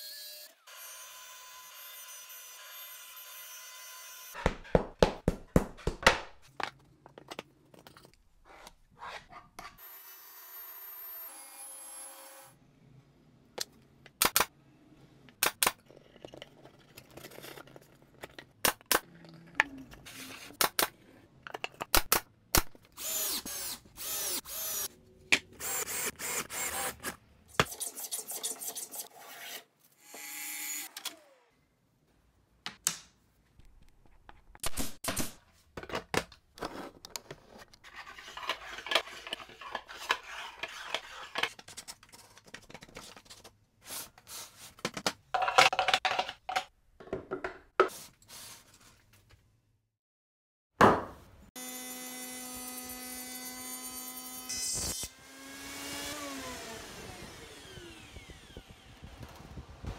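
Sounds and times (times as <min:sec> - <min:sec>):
drill driving screws: 0:23.0 - 0:24.9, 0:25.6 - 0:27.2.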